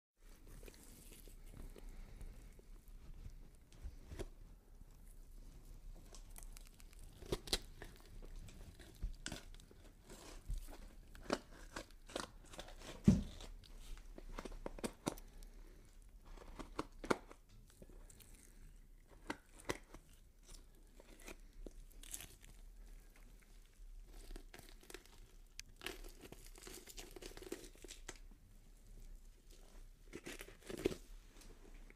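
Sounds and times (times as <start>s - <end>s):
tearing and crackling: 5.9s - 15.4s, 24.0s - 28.3s.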